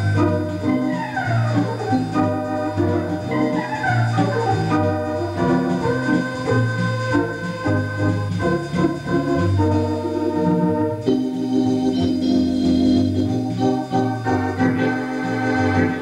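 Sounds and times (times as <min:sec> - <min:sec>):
electronic organ chords and bass: 0:00.0 - 0:16.0.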